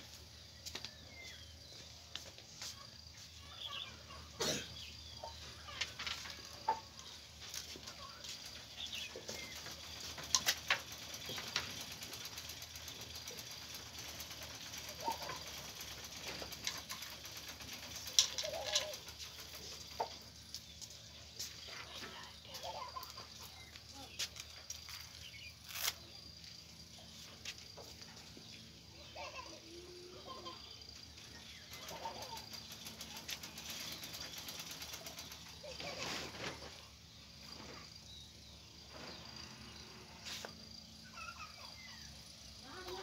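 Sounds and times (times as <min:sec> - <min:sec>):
faint bird calls: 0:28.9 - 0:43.0.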